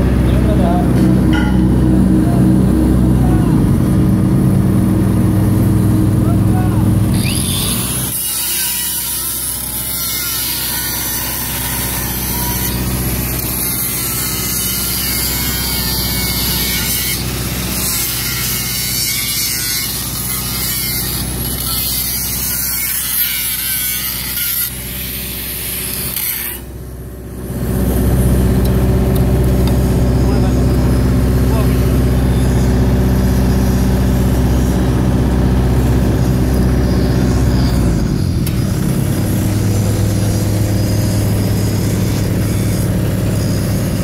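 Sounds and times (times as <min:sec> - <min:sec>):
low engine hum: 0:00.0 - 0:07.4, 0:26.8 - 0:44.0
angle grinder grinding steel: 0:00.2 - 0:44.0.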